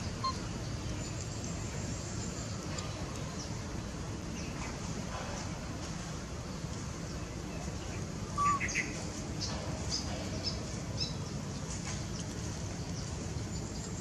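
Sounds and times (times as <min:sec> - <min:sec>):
birds chirping: 0:00.0 - 0:05.2, 0:06.4 - 0:14.0
low background noise: 0:00.0 - 0:14.0.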